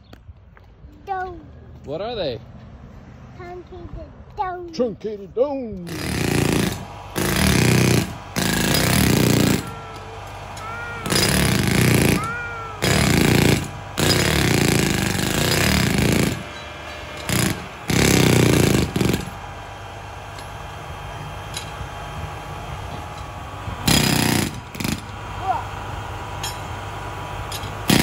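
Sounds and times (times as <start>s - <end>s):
jackhammer hammering into ground: 5.8s - 28.0s.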